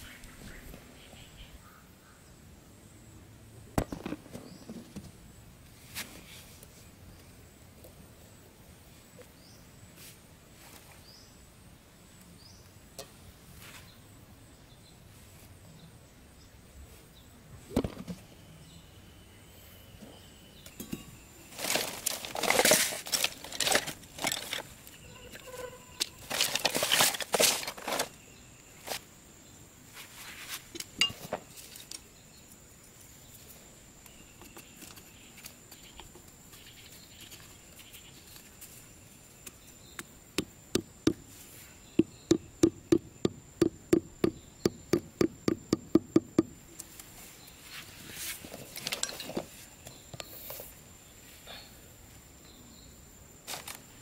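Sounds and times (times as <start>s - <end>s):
hand tools scraping in soil: 21.5s - 28.2s, 29.9s - 32.0s, 46.8s - 50.8s
high insect whine: 24.6s - 30.4s
wooden stake tapped into ground: 39.4s - 41.2s, 42.0s - 46.6s.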